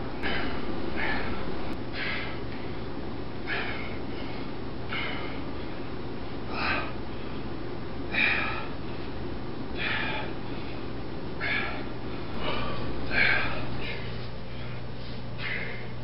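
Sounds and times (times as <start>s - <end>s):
steady low hum: 0.0s - 16.0s
man exhaling forcefully: 0.2s - 2.4s, 3.4s - 5.5s, 6.5s - 7.0s, 9.8s - 10.4s.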